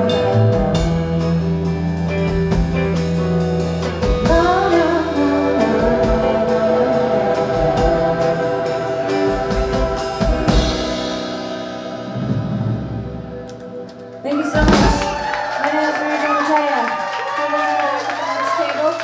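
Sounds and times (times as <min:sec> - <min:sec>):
live rock band playing: 0:00.0 - 0:16.6
drum strikes: 0:14.6 - 0:15.4.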